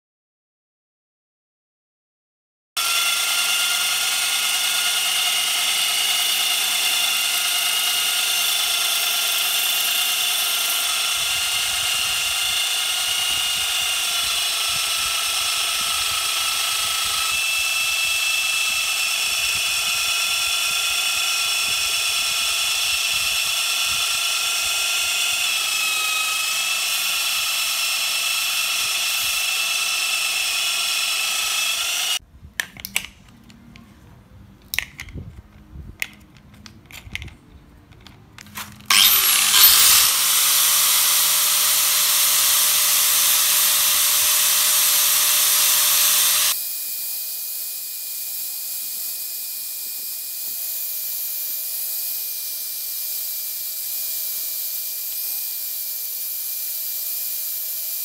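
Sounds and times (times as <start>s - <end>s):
belt sander whining: 2.8s - 32.2s, 38.4s - 46.6s
steel grinding on abrasive belt: 2.8s - 32.2s, 38.9s - 46.6s.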